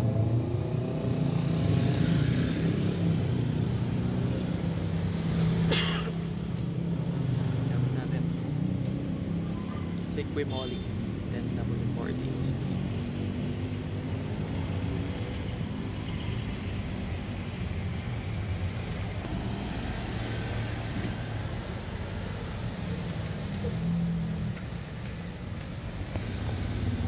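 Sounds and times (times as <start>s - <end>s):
vehicle engine humming: 11.7s - 27.0s.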